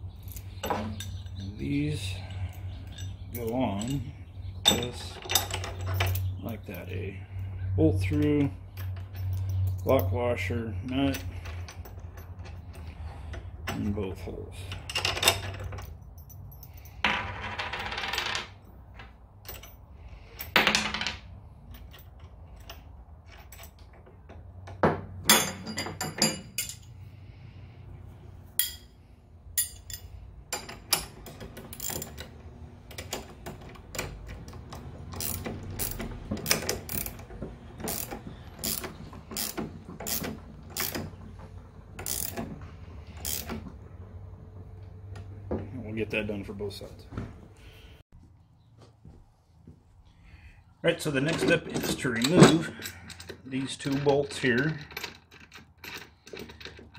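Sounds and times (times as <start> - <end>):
metallic clatter of wrenches: 0.1 - 27.8, 28.6 - 44.2, 51.0 - 56.9
ratcheting wrench clicking: 35.1 - 37.2, 37.9 - 41.1, 42.0 - 42.5, 43.2 - 43.6.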